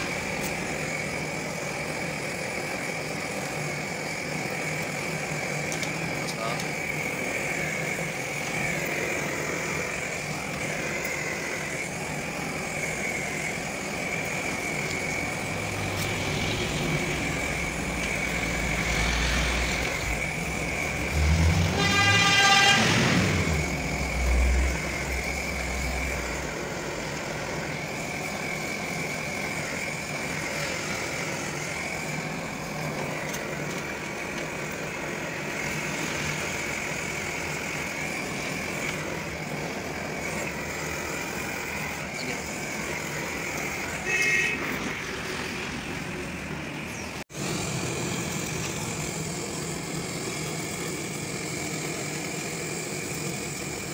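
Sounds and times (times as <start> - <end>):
soldering torch flame hissing: 0.0 - 53.9
vehicle engine rumble: 0.0 - 53.9
vehicle horn: 21.2 - 23.5, 43.9 - 44.8.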